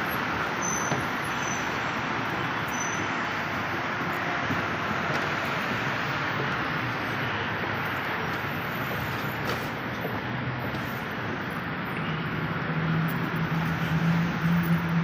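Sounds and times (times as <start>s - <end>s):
passing cars: 0.0s - 15.0s.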